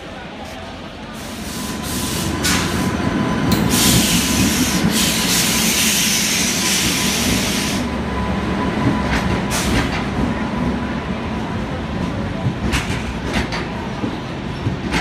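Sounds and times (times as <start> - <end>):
train rumbling past: 0.0 - 15.0
strong hiss: 3.7 - 7.9.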